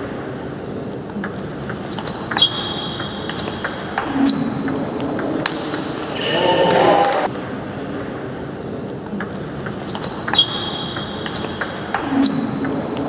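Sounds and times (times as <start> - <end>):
table tennis balls bouncing: 1.0 - 6.2, 9.0 - 13.0.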